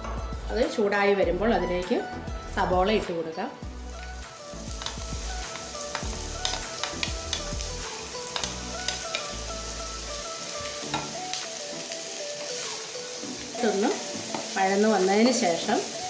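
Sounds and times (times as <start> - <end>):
onions sizzling in oil: 3.6 - 16.0.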